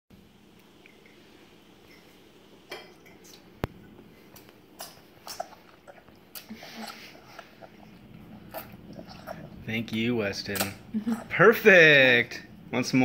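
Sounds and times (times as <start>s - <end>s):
toddler slurping spaghetti: 4.8s - 9.7s.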